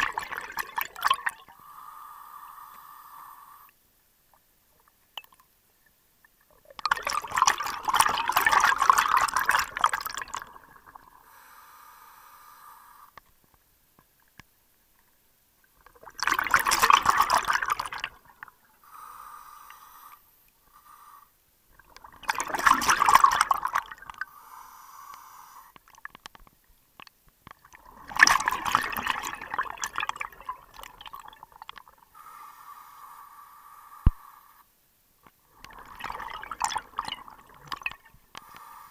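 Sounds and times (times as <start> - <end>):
exhaled bubbles bursting: 0.0 - 1.5, 6.4 - 11.2, 15.8 - 18.5, 21.8 - 24.2, 27.6 - 32.0, 35.5 - 38.2.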